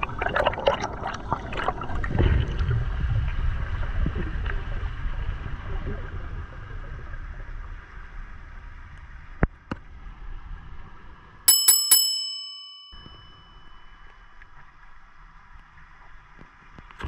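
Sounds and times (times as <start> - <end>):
underwater rush: 0.0 - 11.2
bell-like chimes: 11.5 - 14.3.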